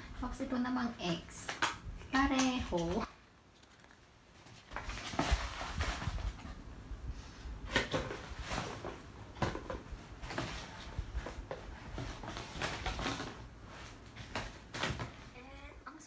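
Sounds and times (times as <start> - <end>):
plastic bag rustling: 2.1 - 6.6
cardboard box moved about: 3.6 - 6.6.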